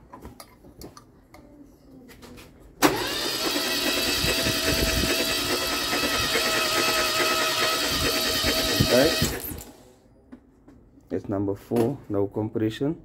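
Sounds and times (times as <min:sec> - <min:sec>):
starter motor cranking engine: 0:02.8 - 0:09.8.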